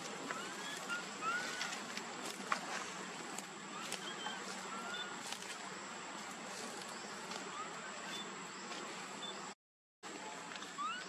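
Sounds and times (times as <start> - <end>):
faint chirps: 3.7 - 5.5, 6.5 - 9.6, 10.6 - 11.0.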